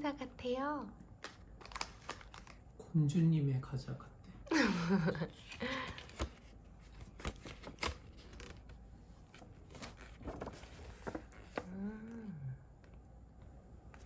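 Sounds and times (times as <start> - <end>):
snack box packaging rustling: 1.2 - 2.6.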